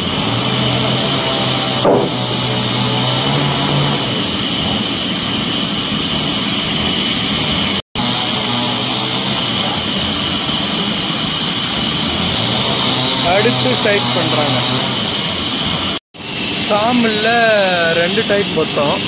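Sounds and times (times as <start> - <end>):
band saw motor humming: 0.0 - 19.0
brief loud knock: 1.8 - 2.2.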